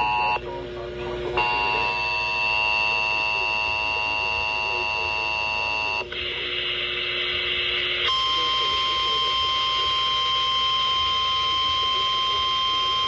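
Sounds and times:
hissy noisy signal: 0:01.3 - 0:13.0.

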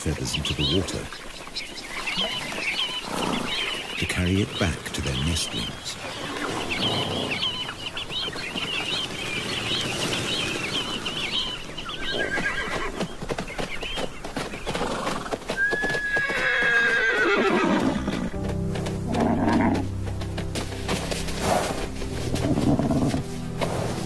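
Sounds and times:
birds chirping: 0:00.0 - 0:24.0
hooves clopping: 0:00.0 - 0:24.0
horse whinnying: 0:12.0 - 0:13.0, 0:14.8 - 0:18.3, 0:19.1 - 0:19.9.

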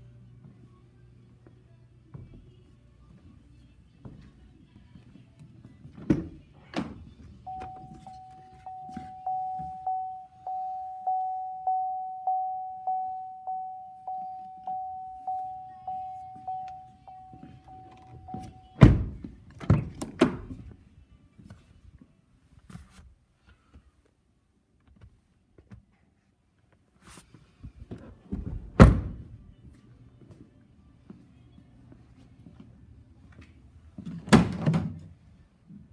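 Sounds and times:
door-open warning chime: 0:07.4 - 0:18.9.

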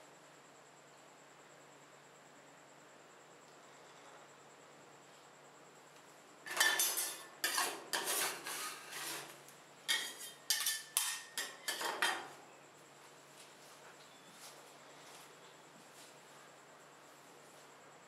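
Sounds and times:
spatulas scraping on metal plate: 0:06.5 - 0:12.3.

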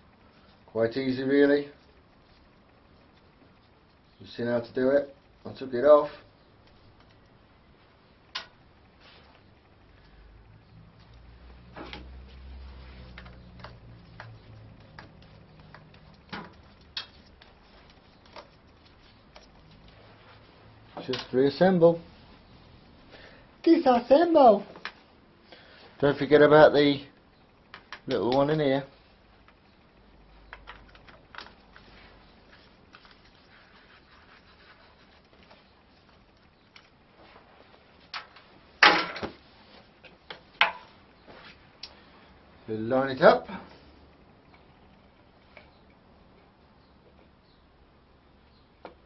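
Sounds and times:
faint low hum: 0:00.0 - 0:49.0
light clicks and taps: 0:13.0 - 0:20.0.

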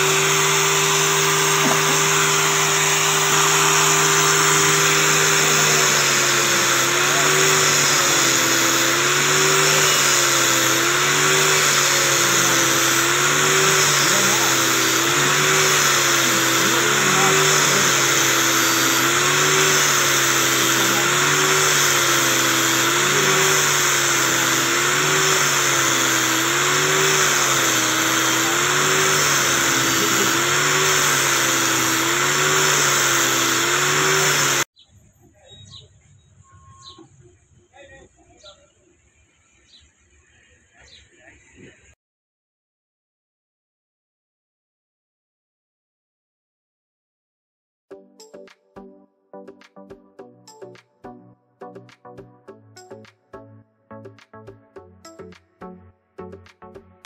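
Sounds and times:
angle grinder whining: 0:00.0 - 0:34.8, 0:49.4 - 0:57.0.

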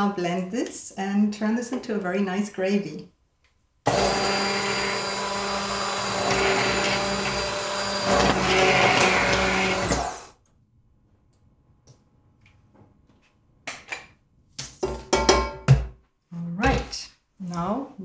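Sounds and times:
immersion blender motor: 0:03.9 - 0:10.4.

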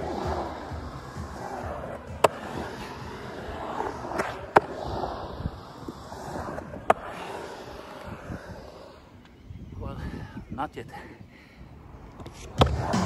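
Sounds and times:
skateboard wheels rolling on concrete: 0:00.0 - 0:10.2, 0:10.9 - 0:13.0.

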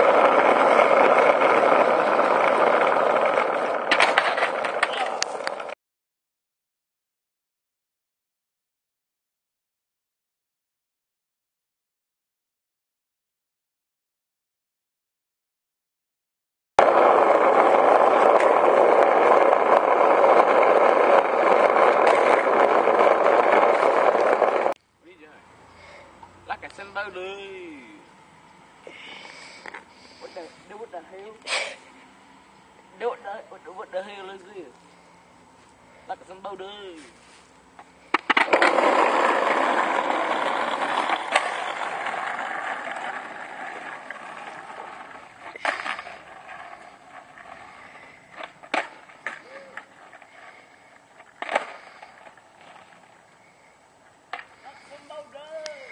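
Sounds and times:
skateboard wheels rolling on asphalt: 0:00.0 - 0:05.8, 0:16.8 - 0:55.9
faint clicks from bumps: 0:37.7 - 0:55.9.

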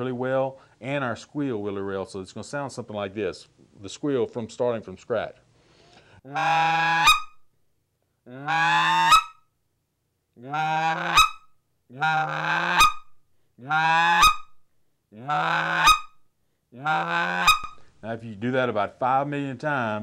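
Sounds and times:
goose call clucks: 0:06.3 - 0:07.4, 0:08.3 - 0:09.4, 0:10.4 - 0:14.6, 0:15.2 - 0:16.2, 0:16.8 - 0:17.9.

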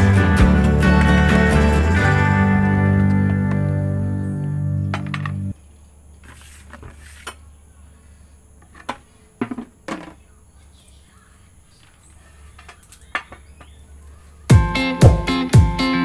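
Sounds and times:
faint low hum: 0:03.6 - 0:14.5.

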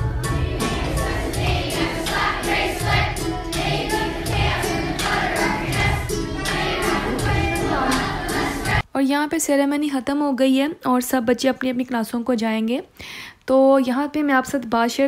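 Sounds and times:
children's choir singing: 0:00.0 - 0:08.8
music with steady beat: 0:00.0 - 0:08.8.

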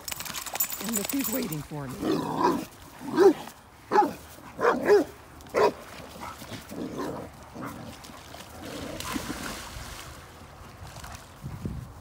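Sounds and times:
dog yelping barks: 0:03.2 - 0:05.8.

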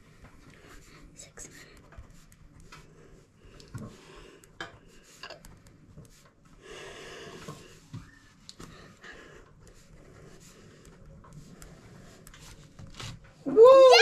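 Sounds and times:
pencil scratching on paper: 0:09.7 - 0:13.1.

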